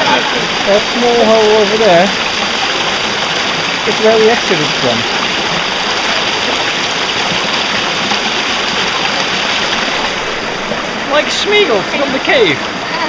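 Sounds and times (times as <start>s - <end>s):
stream flowing over rocks: 0.0s - 13.0s.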